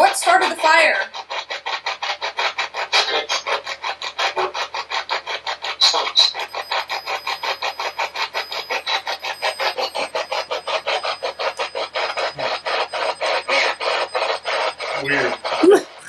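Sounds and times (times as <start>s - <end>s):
radio static bursts: 6.4s - 15.8s.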